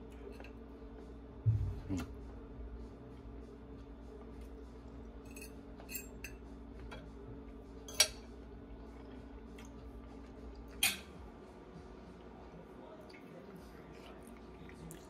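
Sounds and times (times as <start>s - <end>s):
low hum: 0.8s - 5.8s
kitchen utensils clinking: 5.3s - 7.0s, 10.8s - 11.1s.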